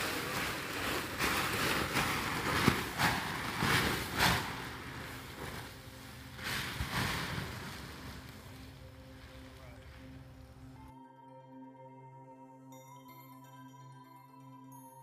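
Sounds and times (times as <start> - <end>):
pool base dragged across ground: 0.0 - 10.8.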